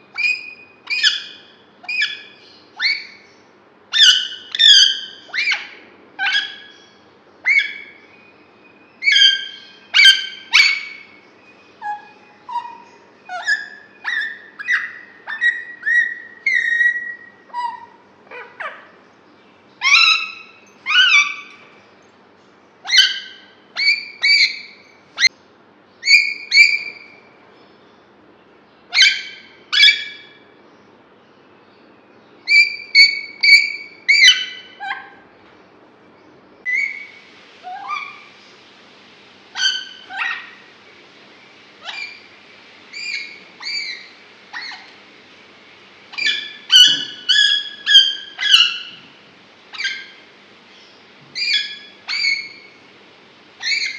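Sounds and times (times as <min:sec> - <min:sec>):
parakeet calling: 0:00.1 - 0:21.8, 0:22.8 - 0:25.4, 0:26.0 - 0:27.3, 0:28.9 - 0:30.5, 0:32.4 - 0:35.3, 0:36.6 - 0:38.4, 0:39.5 - 0:40.8, 0:41.8 - 0:42.3, 0:42.9 - 0:45.0, 0:46.1 - 0:52.9, 0:53.6 - 0:53.9.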